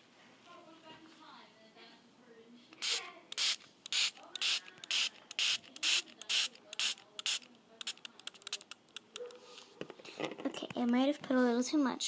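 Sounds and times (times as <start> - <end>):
spray bottle spritzes: 2.8 - 8.8.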